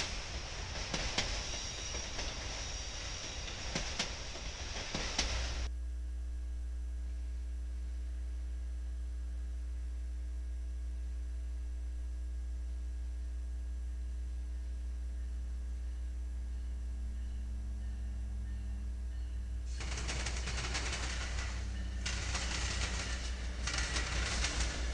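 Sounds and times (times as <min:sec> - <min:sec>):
electrical mains hum: 0:04.7 - 0:24.9
faint high ringing: 0:14.3 - 0:19.7.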